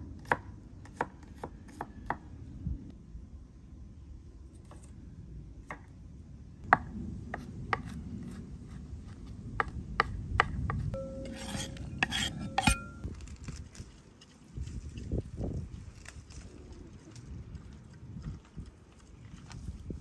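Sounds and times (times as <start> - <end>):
knife chopping on wooden board: 9.6 - 12.9
onion scraped onto ceramic plate: 11.0 - 13.1.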